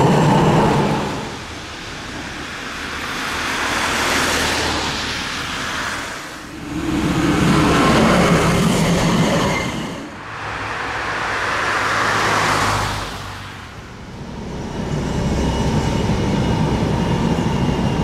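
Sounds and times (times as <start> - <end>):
tram low hum: 0.0 - 18.0
tram rumbling on rails: 0.0 - 18.0.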